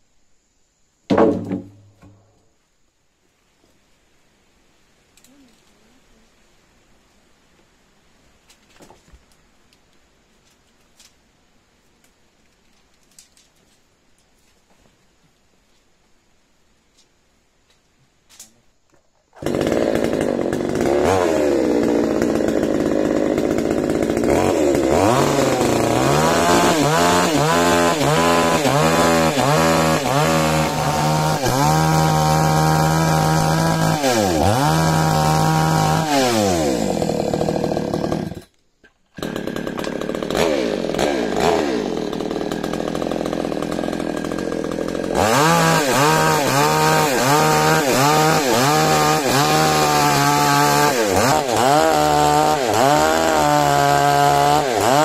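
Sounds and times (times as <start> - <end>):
chainsaw cutting wood: 1.1 - 2.3, 19.3 - 55.0.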